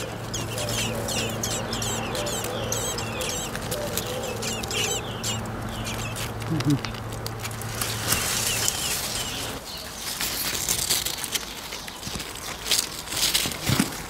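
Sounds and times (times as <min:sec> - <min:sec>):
faint bird chirps: 0:00.0 - 0:06.8
leaves and twigs rustling: 0:00.0 - 0:14.0.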